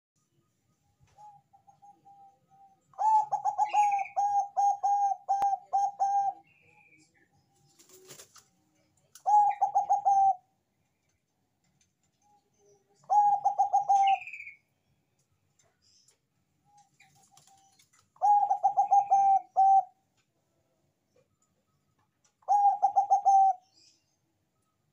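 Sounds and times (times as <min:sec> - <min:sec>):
dove cooing: 0:01.2 - 0:06.5, 0:09.2 - 0:10.4, 0:13.0 - 0:14.6, 0:18.2 - 0:20.0, 0:22.4 - 0:23.7.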